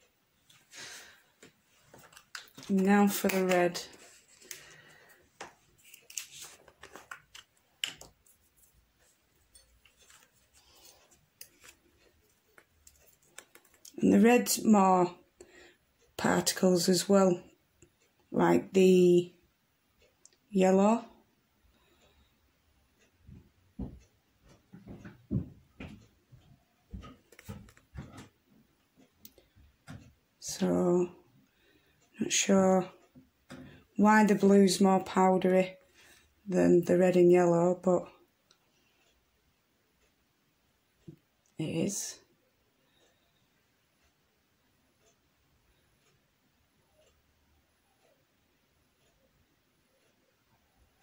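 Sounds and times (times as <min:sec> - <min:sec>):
plastic jar clicks and scrapes: 0:01.9 - 0:08.7
soft taps and light clicks: 0:23.2 - 0:28.4.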